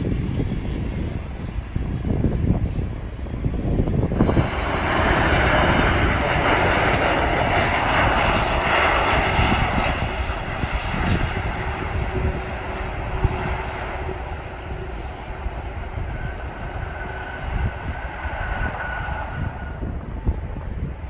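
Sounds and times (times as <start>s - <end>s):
jet engines running: 0.0s - 21.0s.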